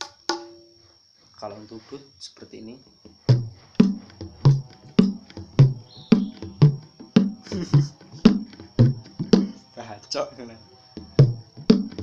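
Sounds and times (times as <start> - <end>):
hand drum bass strokes: 3.2 - 9.6, 11.0 - 12.0.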